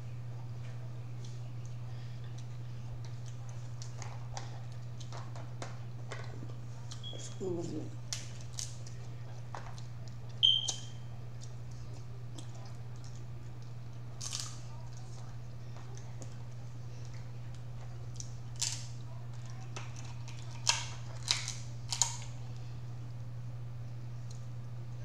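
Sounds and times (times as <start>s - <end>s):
steady low hum: 0.0s - 25.0s
crab shells cracking: 8.0s - 15.2s, 17.1s - 22.4s.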